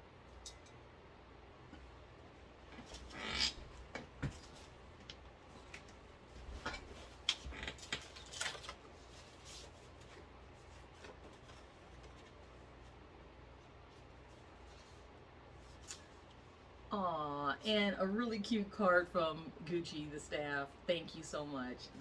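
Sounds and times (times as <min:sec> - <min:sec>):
paper rustling: 0:07.8 - 0:12.9.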